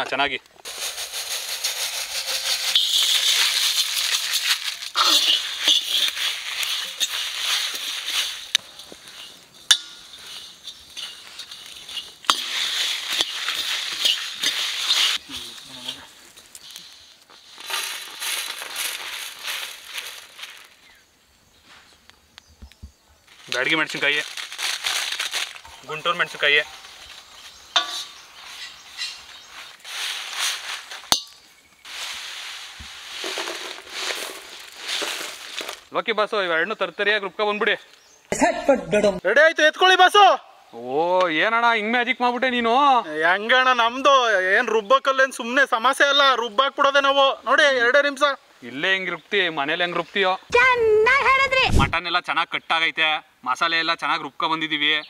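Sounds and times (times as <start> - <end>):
spices rattling in a pan: 0.6 - 15.2, 30.6 - 35.9
sharp clink: 8.6 - 13.4, 31.1 - 31.5.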